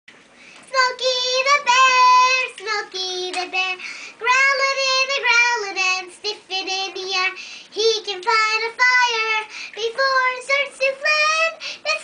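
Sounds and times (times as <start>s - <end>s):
girl singing unaccompanied: 0.6s - 12.0s.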